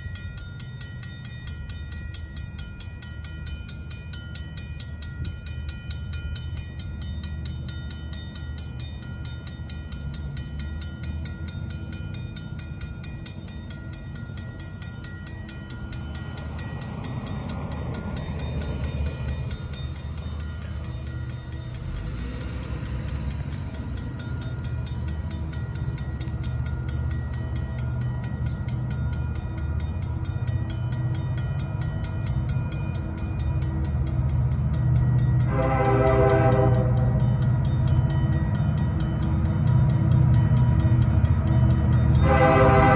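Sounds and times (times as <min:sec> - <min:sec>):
crossing warning bell ringing: 0:00.0 - 0:42.9
freight train rumble: 0:00.0 - 0:42.9
road vehicle passing: 0:15.9 - 0:28.8.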